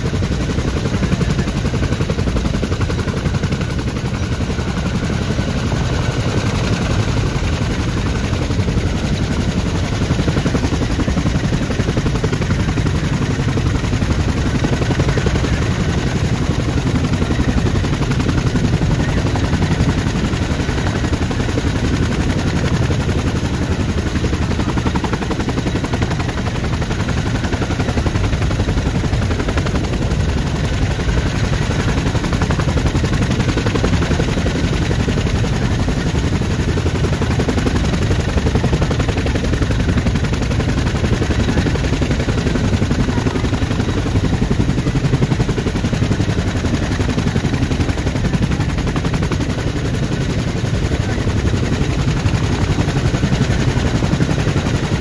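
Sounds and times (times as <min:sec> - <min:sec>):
helicopter engine rush: 0:00.0 - 0:55.0
helicopter rotor chop: 0:00.0 - 0:55.0.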